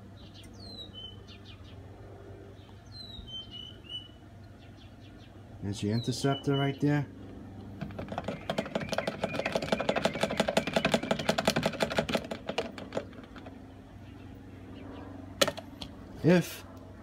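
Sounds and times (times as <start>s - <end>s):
rapid even clicks: 7.8s - 13.6s.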